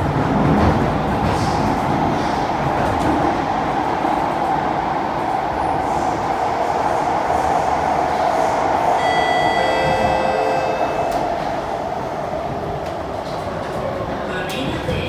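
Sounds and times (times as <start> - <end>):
wheels rumbling on rail: 0.0 - 15.0.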